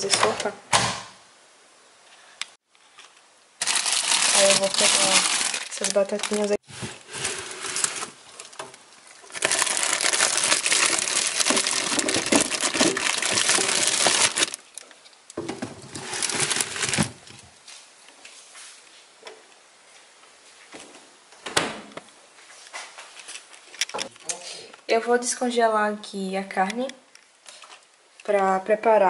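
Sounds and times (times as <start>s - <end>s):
plastic bags crinkling: 3.6s - 14.9s, 15.8s - 17.4s.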